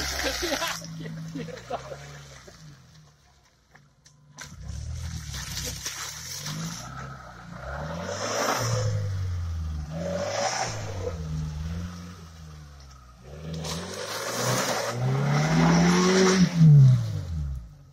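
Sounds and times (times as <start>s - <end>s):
tyres splashing through mud: 0.0s - 3.6s, 4.2s - 11.9s
car engine revving: 4.4s - 17.9s.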